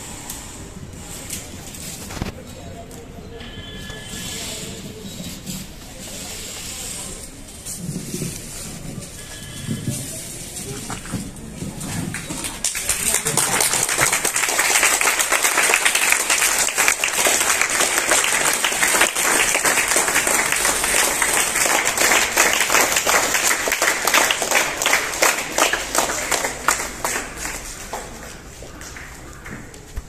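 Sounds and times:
crowd applauding: 12.0 - 29.9.

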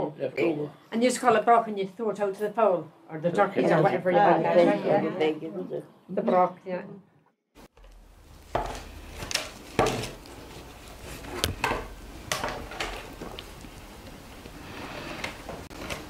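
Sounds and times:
willow rods rustling and knocking: 7.7 - 16.0.

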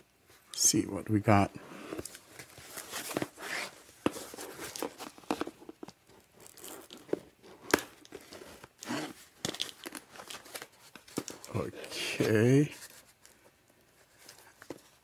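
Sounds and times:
packaging rustling and tearing: 2.0 - 13.4.

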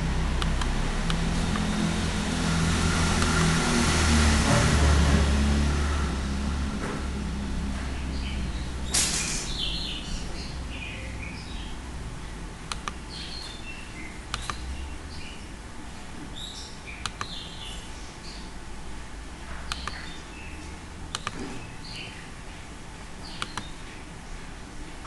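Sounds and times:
computer mouse clicking: 12.7 - 13.0, 14.3 - 14.6, 17.0 - 17.3, 19.7 - 20.1, 21.1 - 21.4, 23.4 - 23.7.

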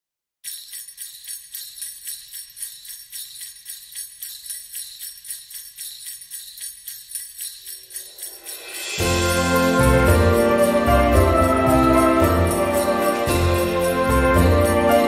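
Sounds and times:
sleigh bells shaken: 0.4 - 15.0
background music: 8.4 - 15.0.

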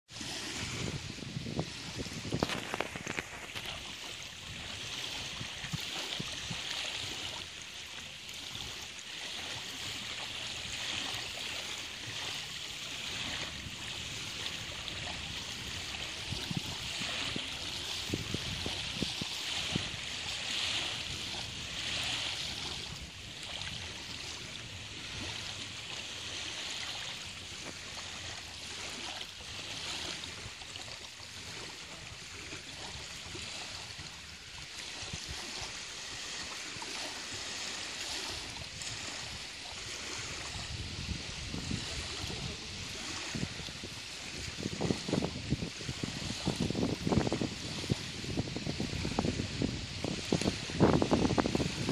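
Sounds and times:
wind thumps on microphone: 0.1 - 6.6, 14.4 - 23.7, 40.3 - 51.9
small waves lapping at shore: 0.1 - 51.9.

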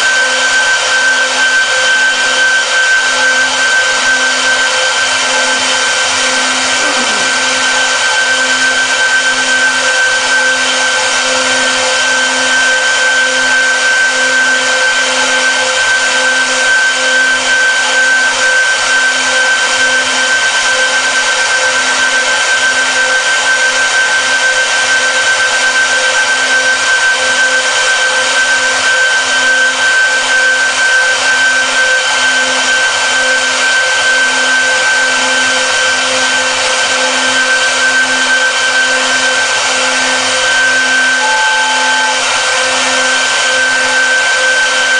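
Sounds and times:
router spindles whining: 0.0 - 44.9
router bits cutting wood: 3.2 - 15.6.

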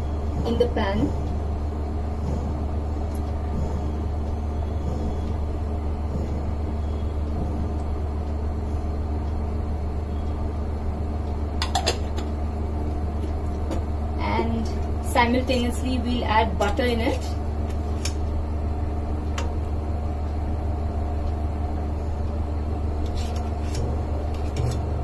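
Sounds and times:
small motor humming: 0.0 - 9.2.

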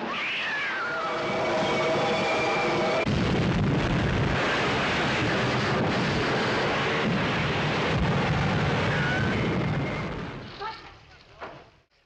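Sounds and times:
rumbling crash of railway cars: 1.0 - 10.6.

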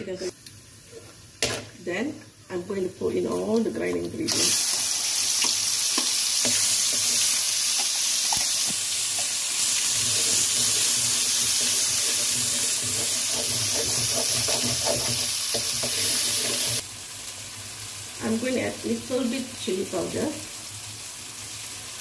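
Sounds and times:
paste sizzling in hot oil: 3.4 - 22.0
metal spatula scraping pan: 9.8 - 16.8.

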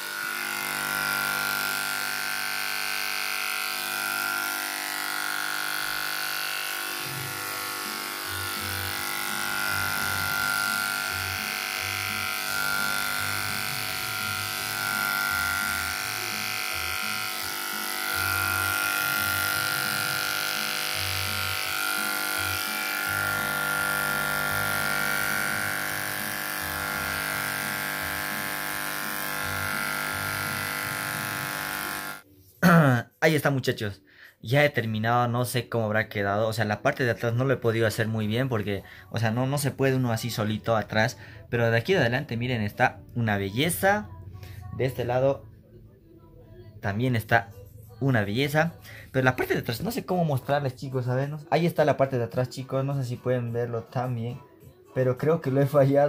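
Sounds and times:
electric hair clipper buzzing: 0.0 - 32.3
background music: 0.0 - 56.0.

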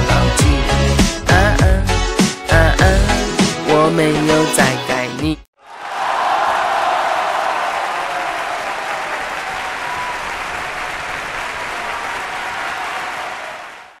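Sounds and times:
crowd applauding: 5.6 - 14.0.

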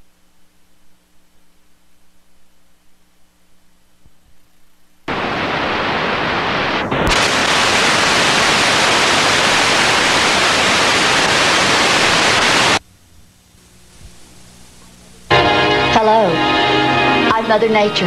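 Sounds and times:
hiss of video static: 5.1 - 18.0.

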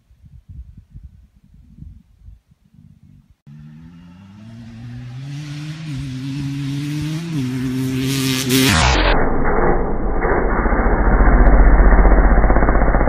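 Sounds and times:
dirt bike accelerating: 3.5 - 13.0.

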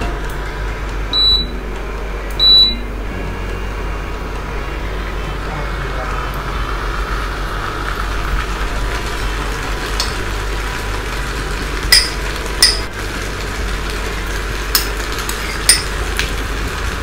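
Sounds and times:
steady hum and hiss: 0.0 - 17.0
spoon clinking ceramic bowl: 11.9 - 12.9, 14.8 - 15.9.

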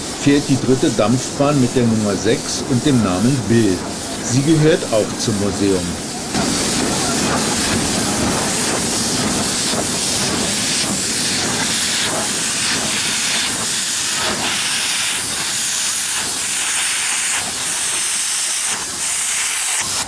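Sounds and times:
steam locomotive hissing and puffing: 0.0 - 20.0.

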